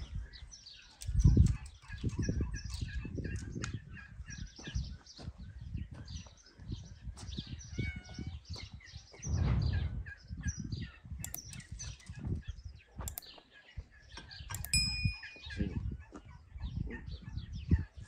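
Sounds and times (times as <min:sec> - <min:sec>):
birds chirping: 0:00.0 - 0:15.9
low thuds: 0:09.2 - 0:11.6.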